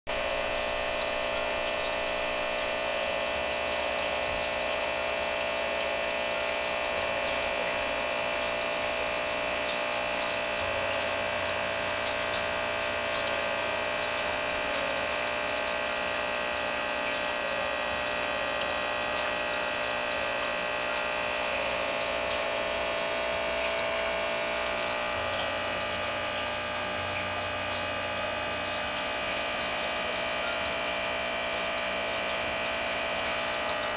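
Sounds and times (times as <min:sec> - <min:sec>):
water churning: 0:00.1 - 0:04.6
motor hum: 0:00.1 - 0:33.9.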